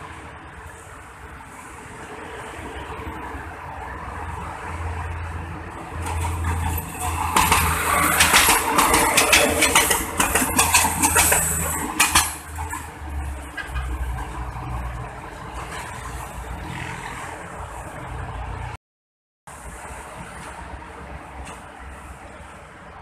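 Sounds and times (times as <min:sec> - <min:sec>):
train wheels clattering on rails: 0:05.9 - 0:14.3.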